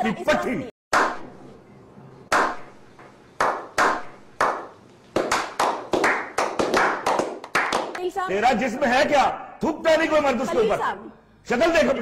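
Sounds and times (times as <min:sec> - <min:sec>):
hand clapping: 0:02.3 - 0:08.1.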